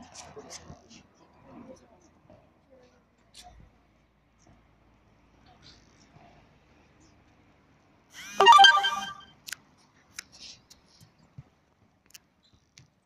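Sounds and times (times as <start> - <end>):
short electronic jingle: 8.4 - 9.2.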